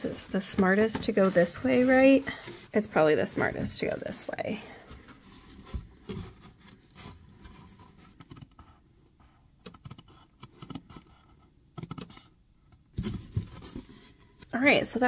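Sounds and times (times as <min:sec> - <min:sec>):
shelf liner rustling: 0:00.0 - 0:09.6, 0:12.9 - 0:15.0.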